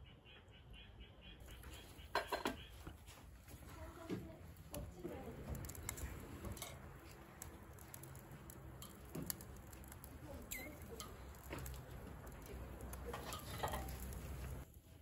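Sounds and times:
utensils tapping on grill grate: 2.1 - 2.6, 4.7 - 14.6.

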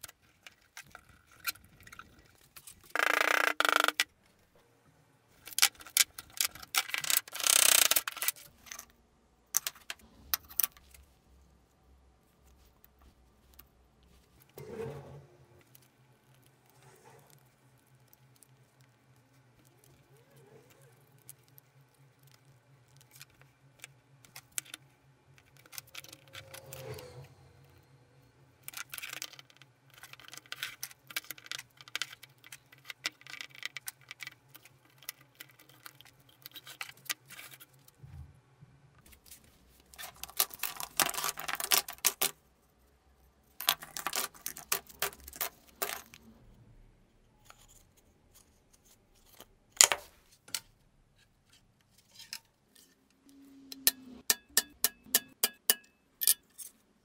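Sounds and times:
plastic clamps clicking and rattling: 5.4 - 8.9.

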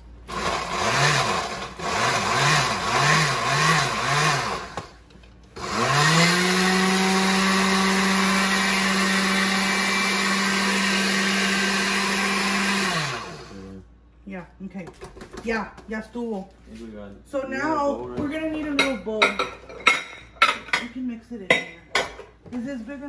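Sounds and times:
blender grinding crackers: 0.0 - 13.8.

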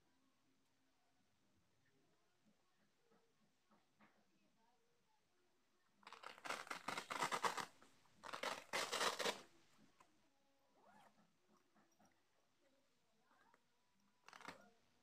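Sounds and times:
plastic wrap crinkling: 6.0 - 9.5, 14.2 - 14.7.

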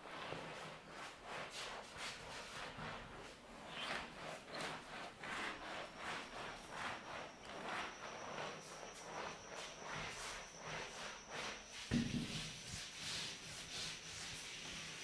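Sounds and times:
cloth wiping a blackboard: 0.0 - 15.0.

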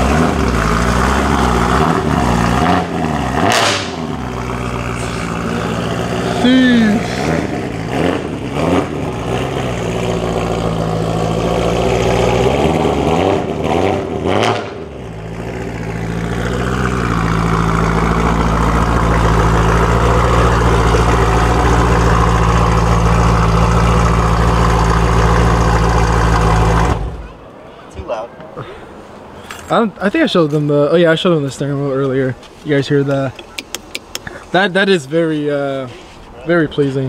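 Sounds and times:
car engine revving: 0.0 - 27.4.

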